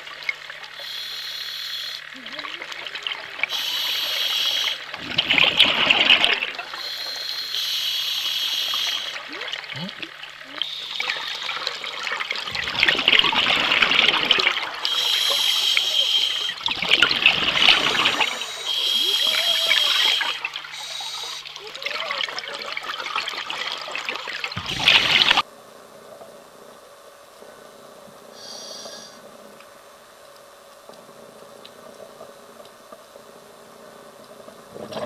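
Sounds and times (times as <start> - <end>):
exhaled air bubbling: 0.0 - 25.4
regulator hissing inhalations: 0.8 - 2.1, 3.5 - 4.9, 6.7 - 9.2, 14.8 - 16.7, 18.0 - 21.6, 28.4 - 29.2.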